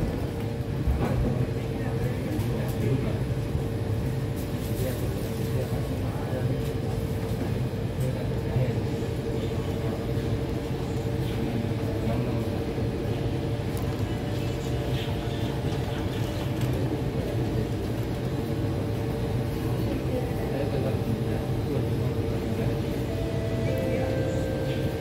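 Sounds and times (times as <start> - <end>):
train equipment humming: 6.8 - 25.0.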